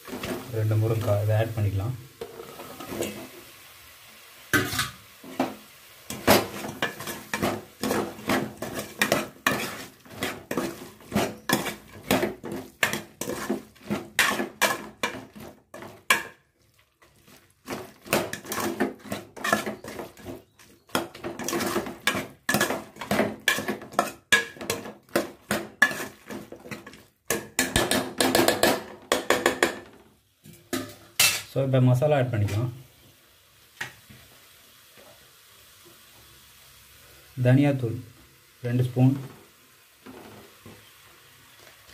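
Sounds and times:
metal ladle scraping a pot: 0:06.1 - 0:16.3, 0:17.0 - 0:28.4.

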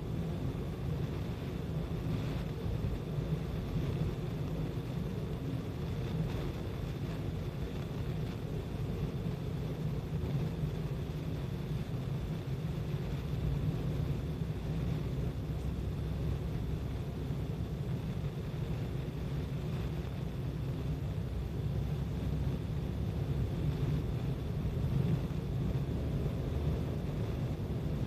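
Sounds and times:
car road and engine rumble: 0:00.0 - 0:28.0.

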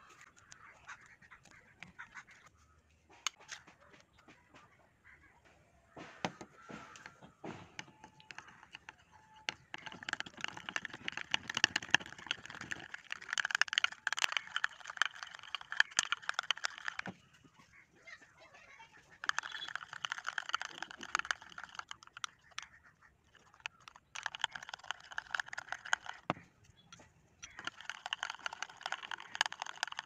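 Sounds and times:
plastic spoon scraping slime in bowl: 0:07.8 - 0:17.2, 0:19.2 - 0:22.6, 0:23.3 - 0:26.4.

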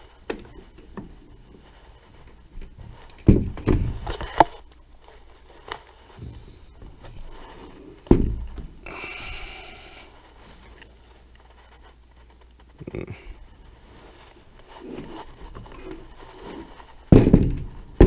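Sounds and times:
knocks and thumps of metal parts: 0:02.6 - 0:04.6, 0:08.0 - 0:08.8, 0:17.1 - 0:18.0
scraping: 0:13.4 - 0:18.0.

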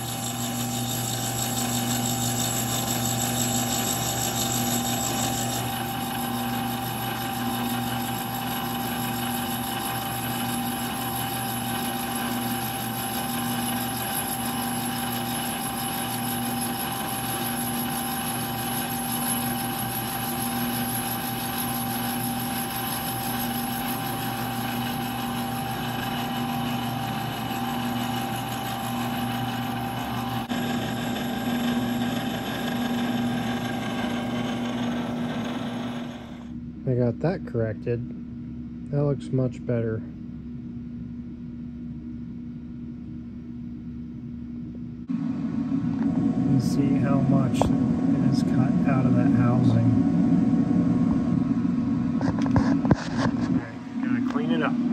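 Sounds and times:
milling machine cutting metal: 0:00.0 - 0:36.6, 0:52.2 - 0:54.9.

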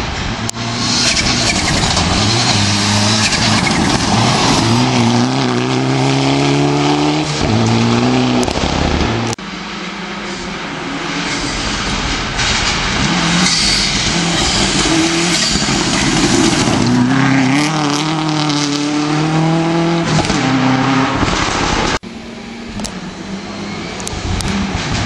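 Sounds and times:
distant car engine: 0:00.0 - 0:25.0
rally car engine revving past: 0:00.6 - 0:09.3, 0:16.3 - 0:21.7.

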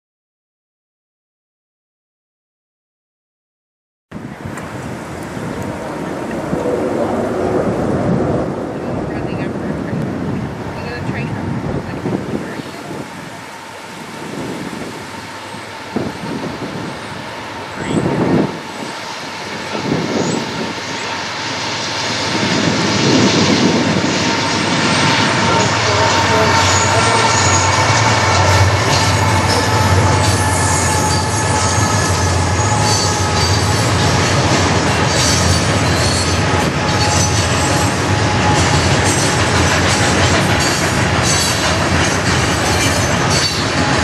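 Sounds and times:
diesel locomotives passing: 0:04.2 - 0:44.0
train wheels rumbling on rail: 0:04.2 - 0:44.0
high wheel squeal: 0:15.1 - 0:23.0, 0:24.4 - 0:44.0
rail-joint clicks: 0:25.6 - 0:44.0.

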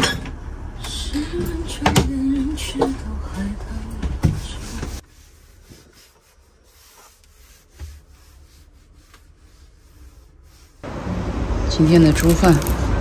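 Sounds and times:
cloth wiping a countertop: 0:04.4 - 0:10.8.

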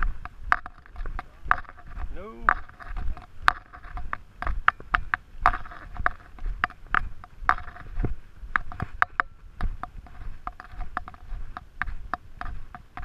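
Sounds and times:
footsteps on dirt and rock trail: 0:00.0 - 0:13.0.

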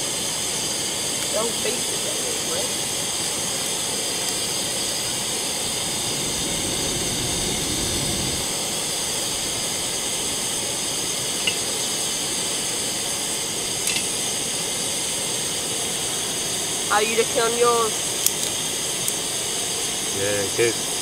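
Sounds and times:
gas stove burner hissing: 0:00.0 - 0:21.0
wood fire burning: 0:00.0 - 0:21.0.

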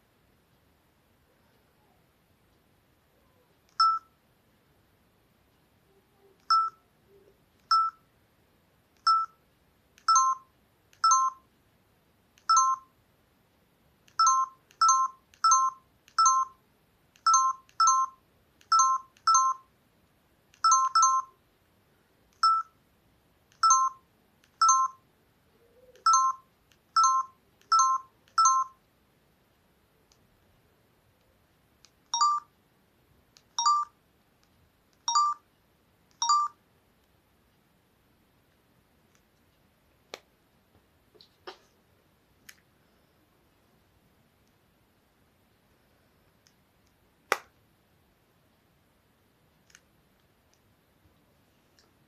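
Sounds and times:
phone key beeps: 0:03.7 - 0:04.2, 0:06.4 - 0:06.8, 0:07.6 - 0:08.0, 0:09.0 - 0:09.4, 0:10.0 - 0:11.4, 0:12.4 - 0:12.9, 0:14.1 - 0:16.6, 0:17.2 - 0:19.7, 0:20.6 - 0:21.4, 0:22.4 - 0:22.7, 0:23.6 - 0:24.0, 0:24.6 - 0:25.0, 0:25.9 - 0:28.8, 0:32.1 - 0:32.5, 0:33.6 - 0:33.9, 0:35.1 - 0:35.4, 0:36.2 - 0:36.6.

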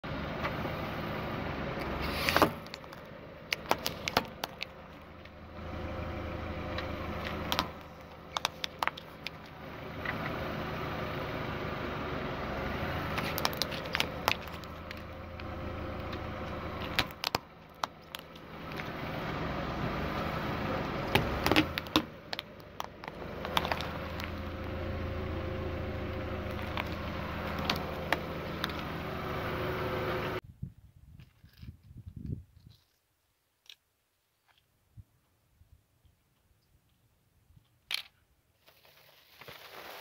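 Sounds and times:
car engine idling: 0:00.0 - 0:30.4
plastic toy cars cracking: 0:02.1 - 0:04.8, 0:07.2 - 0:09.4, 0:13.1 - 0:15.1, 0:16.8 - 0:18.9, 0:21.1 - 0:24.4.

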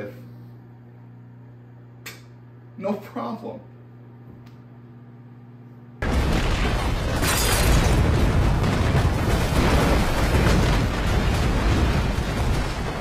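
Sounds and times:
heavy rumble: 0:06.0 - 0:13.0
house exploding: 0:06.0 - 0:13.0.

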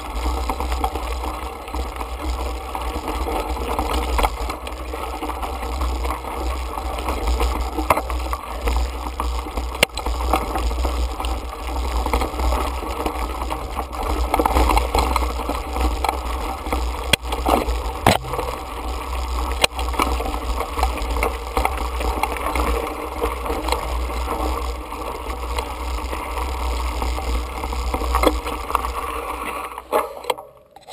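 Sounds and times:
bike knocking on rocks: 0:15.9 - 0:18.8.

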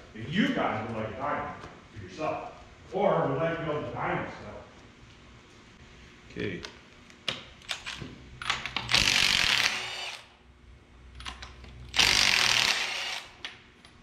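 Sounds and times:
cordless power tool spinning: 0:08.9 - 0:10.3, 0:11.9 - 0:13.4.

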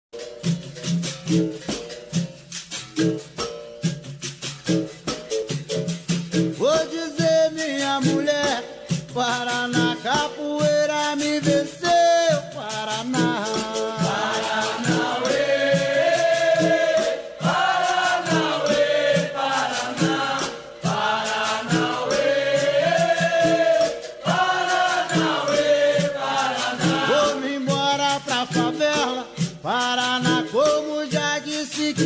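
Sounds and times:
percussion beat: 0:00.2 - 0:32.0
chorus singing: 0:12.8 - 0:29.2.

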